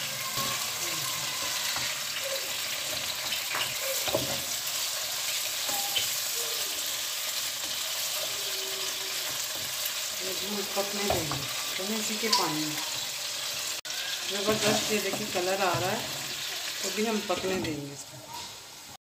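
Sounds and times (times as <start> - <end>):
chicken sizzling in oil: 0.0 - 19.0
spatula knocking and scraping pan: 1.4 - 4.9, 10.6 - 11.6, 14.4 - 16.5.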